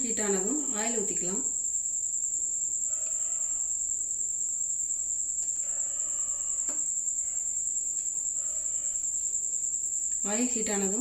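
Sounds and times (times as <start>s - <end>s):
crickets chirping: 0.0s - 11.0s
faint clicks: 10.1s - 10.3s.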